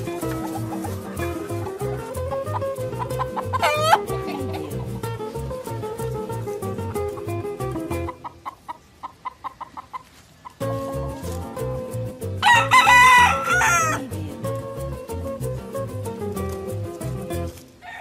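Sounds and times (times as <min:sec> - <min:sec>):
music with steady beat: 0:00.0 - 0:08.2, 0:10.6 - 0:17.6
rooster crowing: 0:03.6 - 0:04.0, 0:12.4 - 0:14.0, 0:17.8 - 0:18.0.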